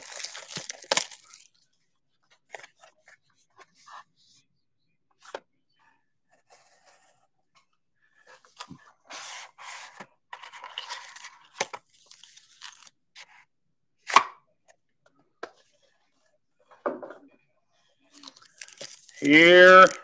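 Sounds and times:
packaging ripping and rustling: 0:00.0 - 0:01.5, 0:10.6 - 0:12.9, 0:18.2 - 0:20.0.

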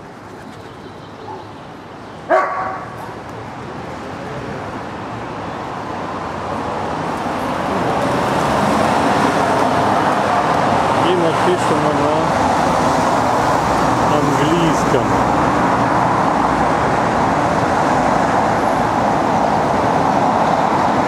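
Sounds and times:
road traffic noise: 0:00.0 - 0:21.0
dog barking: 0:02.3 - 0:03.2.

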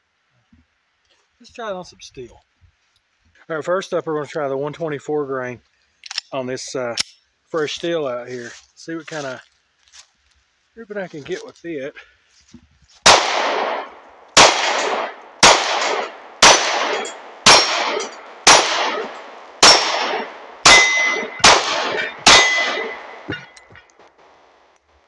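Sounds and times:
pistol shots: 0:13.0 - 0:24.4
steel target clanging: 0:13.1 - 0:24.1.

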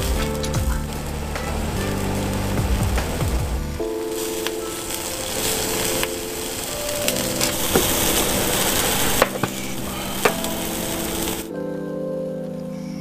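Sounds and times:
background music with sustained chords: 0:00.0 - 0:13.0
meat sizzling on a grill: 0:04.0 - 0:11.5.

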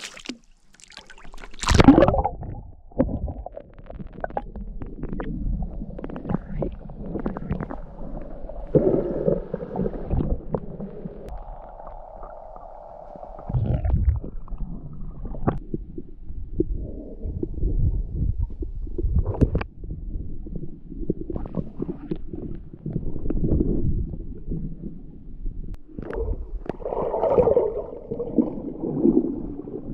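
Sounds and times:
water splash: 0:00.0 - 0:03.6, 0:26.1 - 0:29.9
water sloshing and gurgling: 0:00.0 - 0:29.9
muffled underwater rumble: 0:01.6 - 0:29.9.

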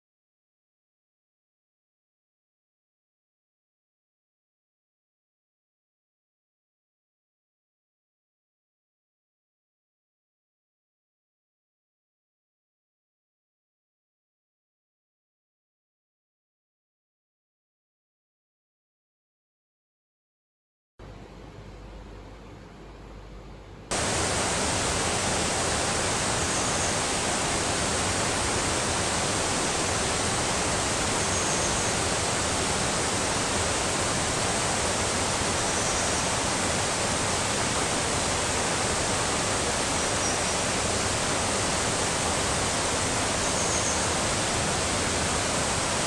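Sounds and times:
river water rushing: 0:23.9 - 0:46.0
faint high chirps: 0:30.9 - 0:32.2.

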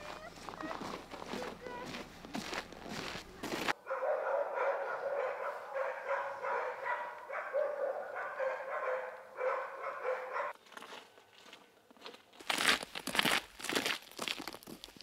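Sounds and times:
dog barking and yelping: 0:03.8 - 0:10.6.

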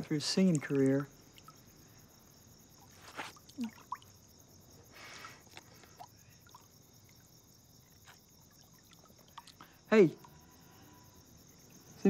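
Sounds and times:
crickets chirping: 0:00.0 - 0:12.0
soft small movements: 0:02.6 - 0:07.0.

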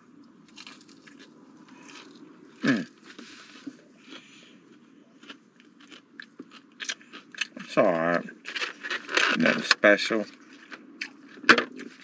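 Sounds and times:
chewing crunchy food: 0:00.2 - 0:12.0.

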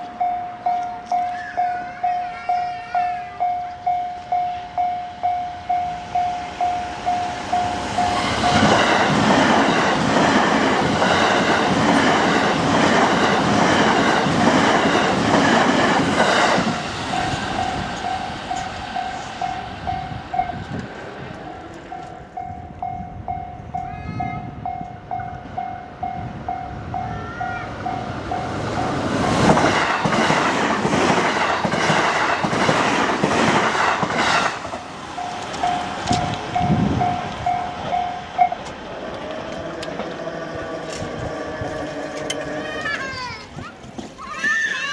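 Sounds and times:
level crossing alarm ringing: 0:00.0 - 0:10.0, 0:34.8 - 0:38.7
train passing with wheel clatter: 0:00.0 - 0:44.9.

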